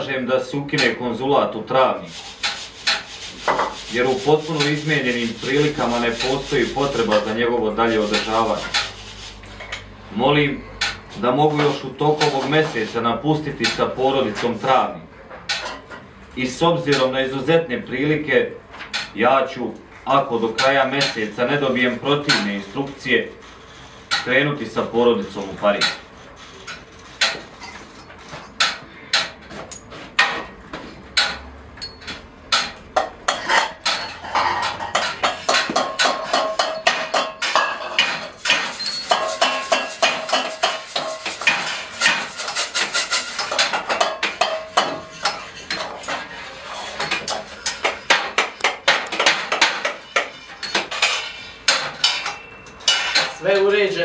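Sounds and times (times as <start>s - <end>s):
clatter of sharp knocks and clicks: 47.0s - 53.4s.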